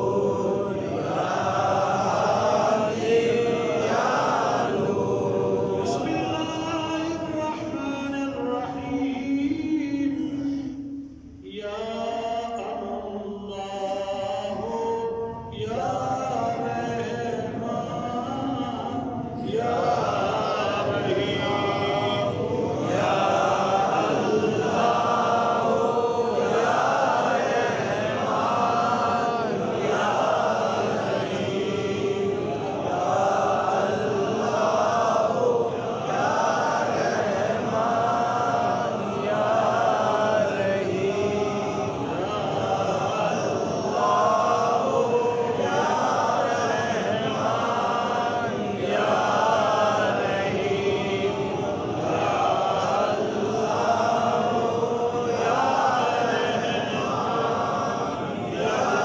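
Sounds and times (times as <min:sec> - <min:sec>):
men chanting: 0:00.0 - 0:10.8, 0:11.5 - 0:59.0.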